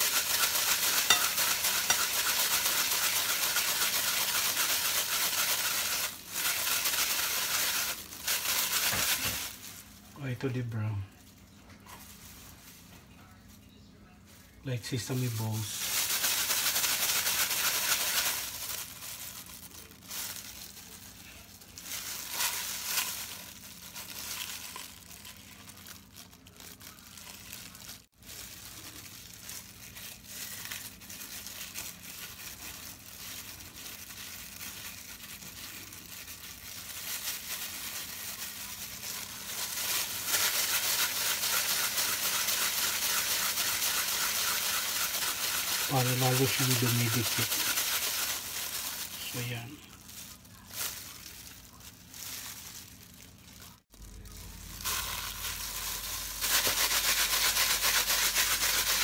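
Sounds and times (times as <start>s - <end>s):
plastic gloves crinkling: 0.0s - 59.0s.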